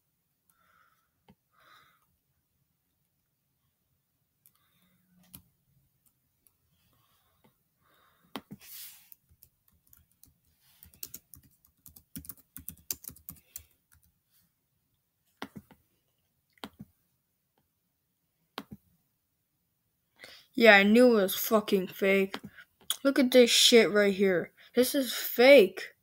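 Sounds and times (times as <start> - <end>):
computer keyboard typing: 9.1 - 14.1.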